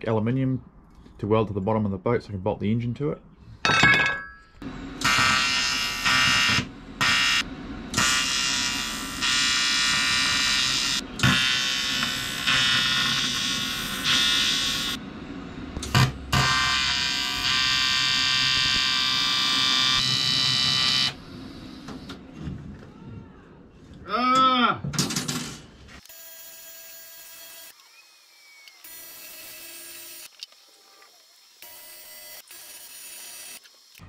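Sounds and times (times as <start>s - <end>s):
arc welder buzzing: 4.6s - 15.0s, 15.8s - 22.1s, 26.0s - 34.0s.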